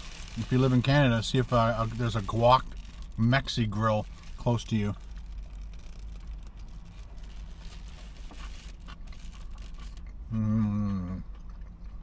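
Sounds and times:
low car cabin hum: 0:00.0 - 0:12.0
man chewing food: 0:05.0 - 0:12.0
man humming mmm: 0:10.3 - 0:11.3.

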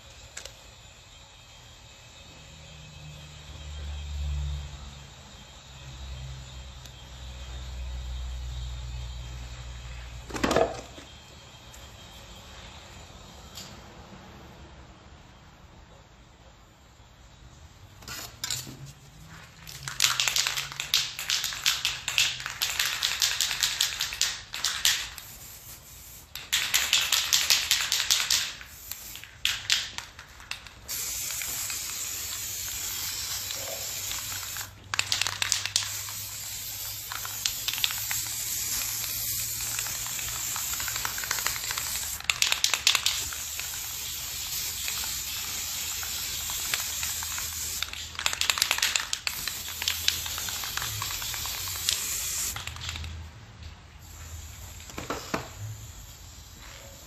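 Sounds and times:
spray paint hissing: 0:17.9 - 0:53.2, 0:54.0 - 0:57.0
spray can rattling: 0:19.5 - 0:53.3, 0:54.0 - 0:56.5.

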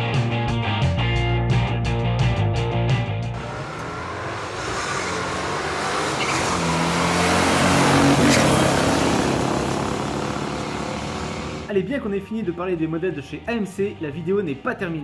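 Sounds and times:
car engines at full throttle: 0:03.3 - 0:11.7.

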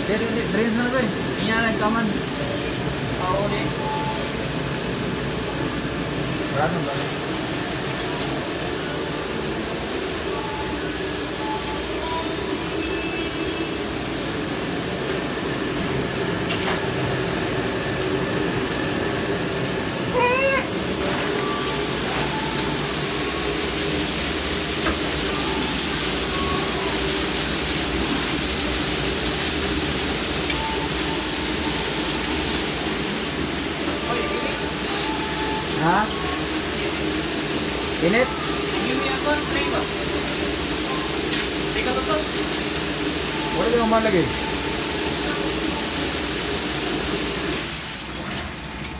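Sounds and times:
dishwasher machine hum and hiss: 0:00.0 - 0:48.9.

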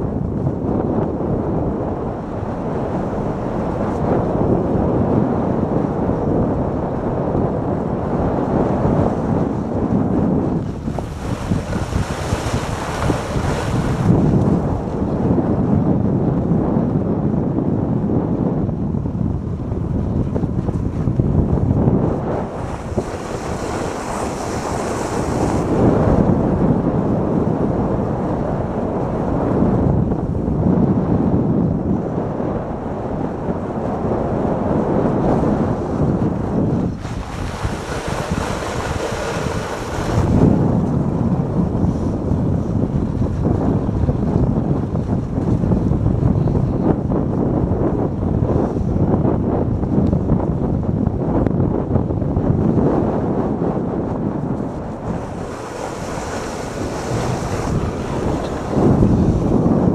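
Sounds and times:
wind on microphone: 0:00.0 - 0:59.9
toboggan runners rumbling over snow: 0:07.9 - 0:16.2, 0:33.8 - 0:59.9.

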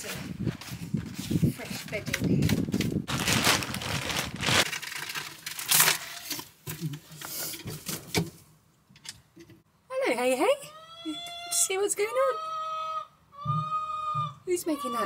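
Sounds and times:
dry bedding rustling and crackling: 0:00.1 - 0:06.0.

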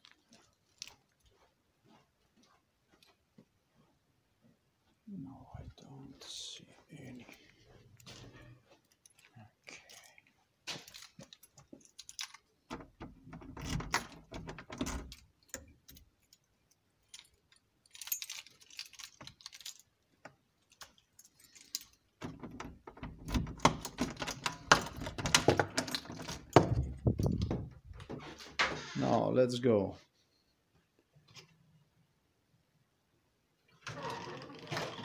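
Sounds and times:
rustling handling noise: 0:00.0 - 0:05.0, 0:05.6 - 0:13.1, 0:15.0 - 0:22.9
small metal objects clicking: 0:10.9 - 0:12.5, 0:15.1 - 0:20.0, 0:20.6 - 0:22.1.

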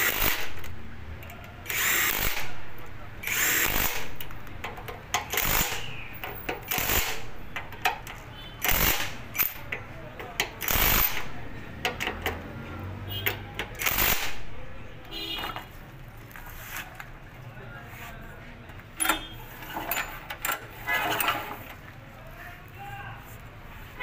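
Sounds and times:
cordless power driver bursts: 0:00.0 - 0:00.7, 0:01.6 - 0:02.6, 0:03.2 - 0:04.3, 0:05.3 - 0:07.3, 0:08.6 - 0:09.6, 0:10.6 - 0:11.3, 0:13.8 - 0:14.4
small metallic clicks: 0:03.2 - 0:14.4, 0:18.7 - 0:21.8.

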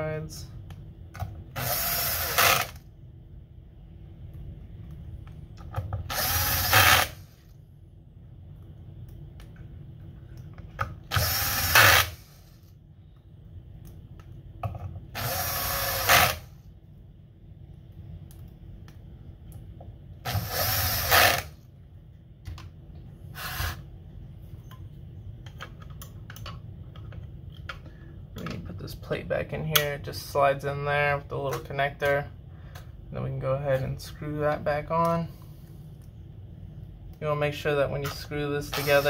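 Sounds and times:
cordless drill driving screws: 0:01.6 - 0:02.8, 0:06.1 - 0:07.3, 0:11.1 - 0:12.4, 0:15.2 - 0:16.5, 0:20.3 - 0:21.6, 0:23.4 - 0:23.8.

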